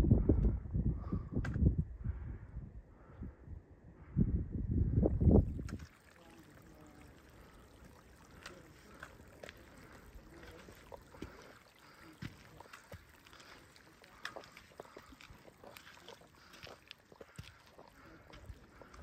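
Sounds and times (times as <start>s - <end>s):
faint footsteps on gravel: 5.8s - 19.0s.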